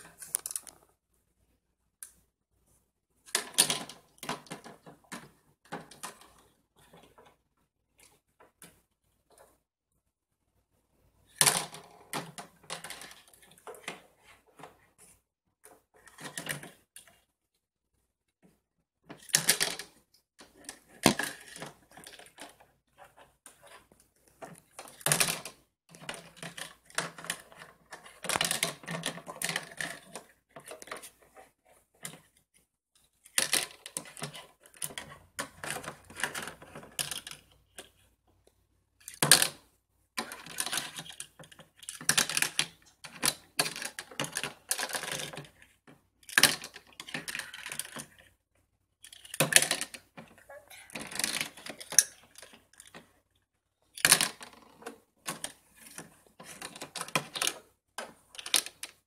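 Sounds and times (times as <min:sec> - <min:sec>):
plastic toys clattering: 0:00.0 - 0:00.8, 0:03.3 - 0:07.4, 0:11.3 - 0:14.8, 0:15.7 - 0:17.2, 0:19.1 - 0:32.4, 0:33.1 - 0:38.0, 0:39.0 - 0:39.6, 0:40.2 - 0:48.4, 0:49.0 - 0:53.2, 0:53.9 - 0:59.0.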